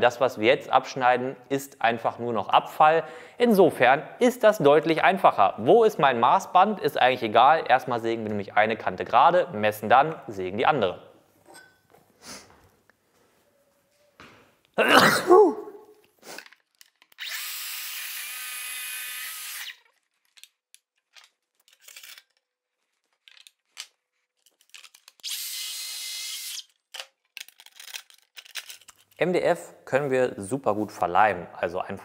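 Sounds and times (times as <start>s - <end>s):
saw whining through wood: 17.2s - 19.9s, 25.3s - 26.7s.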